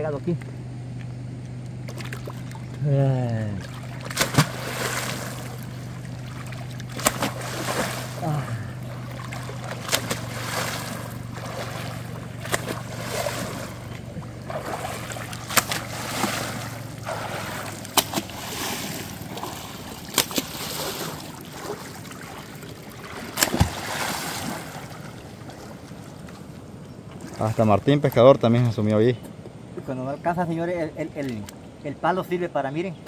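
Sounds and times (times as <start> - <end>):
river water splashing: 1.6 - 29.8
wooden pole knocking in water: 6.8 - 8.0, 9.3 - 10.7, 11.4 - 13.6, 14.2 - 16.6, 17.3 - 18.6.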